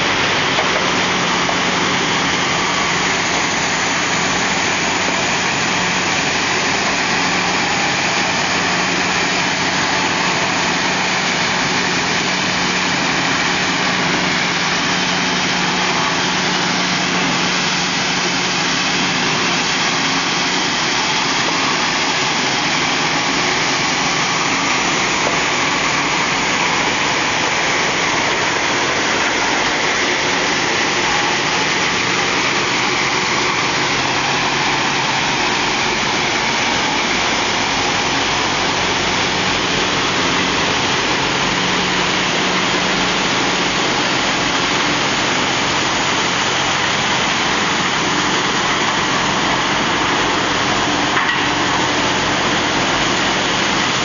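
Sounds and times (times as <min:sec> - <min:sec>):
machinery humming: 0:00.0 - 0:54.0.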